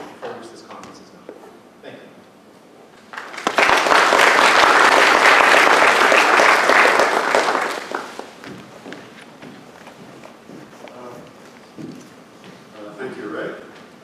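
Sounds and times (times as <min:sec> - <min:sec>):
audience applauding: 0:03.0 - 0:08.5.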